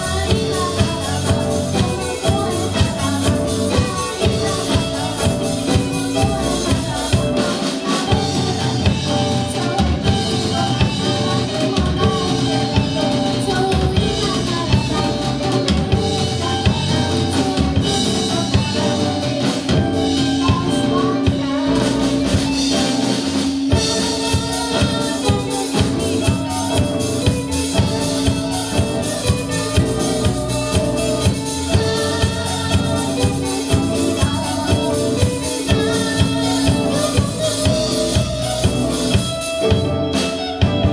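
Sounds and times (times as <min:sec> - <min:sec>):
drum kit beat: 0:00.0 - 0:40.9
live band playing: 0:00.0 - 0:40.9
person singing: 0:00.0 - 0:40.9.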